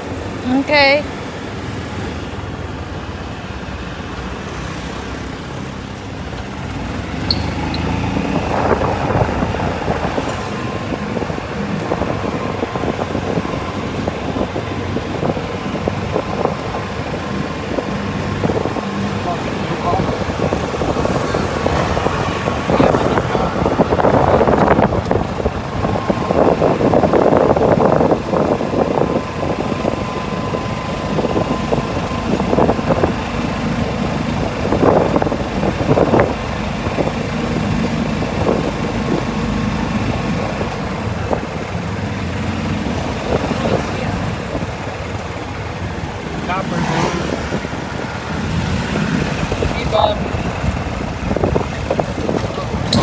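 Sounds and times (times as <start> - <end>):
golf cart motor and tyres: 0.0 - 53.0
wind buffeting microphone: 5.4 - 53.0.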